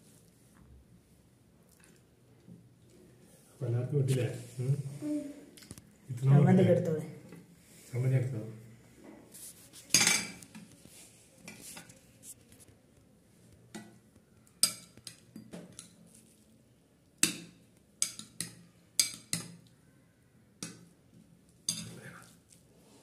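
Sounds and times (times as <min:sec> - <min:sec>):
plastic spoons clinking on plates: 0:09.9 - 0:10.7, 0:13.7 - 0:16.4, 0:17.2 - 0:19.8, 0:21.6 - 0:22.2.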